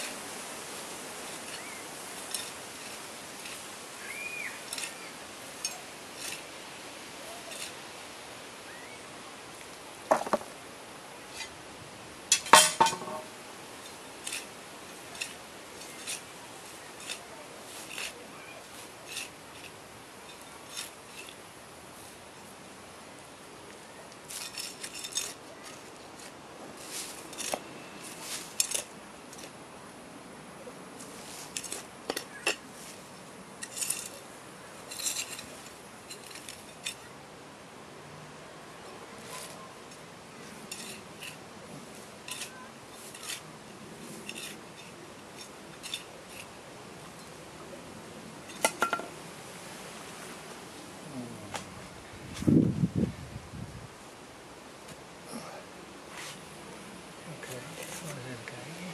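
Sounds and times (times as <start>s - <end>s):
metal trowel scraping and clinking: 1.4s - 3.6s, 4.6s - 5.0s, 5.6s - 6.4s, 12.3s - 14.5s, 15.1s - 16.3s, 16.9s - 18.2s, 19.0s - 21.4s, 24.3s - 26.3s, 27.1s - 29.5s, 33.6s - 34.2s, 34.9s - 37.1s, 40.6s - 41.4s, 42.2s - 43.4s, 44.1s - 46.6s.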